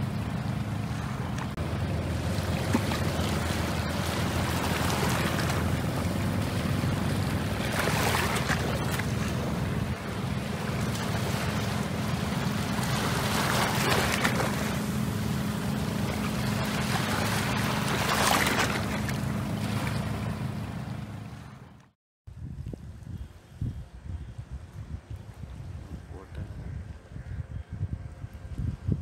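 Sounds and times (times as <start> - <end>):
low engine hum: 0.0 - 29.0
wind on microphone: 22.3 - 29.0.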